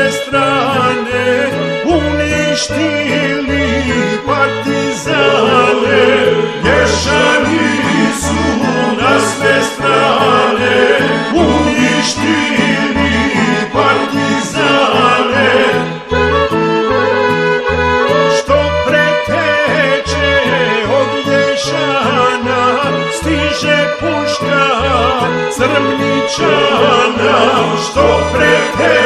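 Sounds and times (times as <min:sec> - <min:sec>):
person singing: 0:00.0 - 0:17.2, 0:18.0 - 0:29.0
accordion playing folk tune: 0:00.0 - 0:29.0
pulsing bass line: 0:03.5 - 0:21.8, 0:24.8 - 0:29.0.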